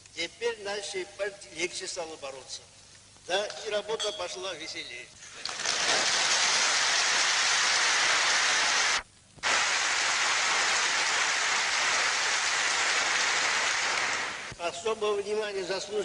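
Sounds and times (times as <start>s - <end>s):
audience applauding: 5.4s - 14.6s.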